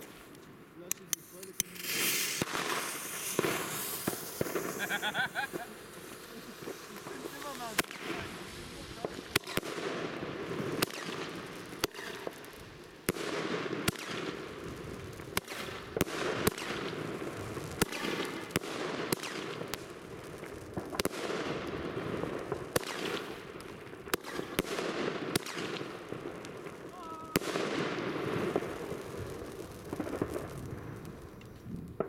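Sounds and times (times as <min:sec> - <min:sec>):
continuous firework hiss: 0:00.0 - 0:32.0
firework bangs: 0:00.9 - 0:32.0.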